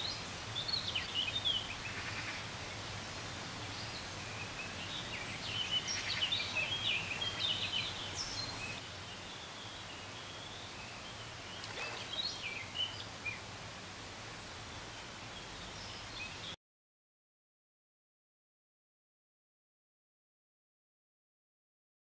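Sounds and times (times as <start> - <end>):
small birds chirping: 0.0 - 13.6
steady background hiss: 0.0 - 16.6.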